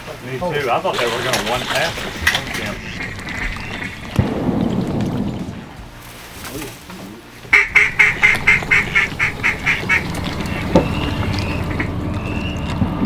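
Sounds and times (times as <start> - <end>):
duck call quacks: 7.5 - 11.0.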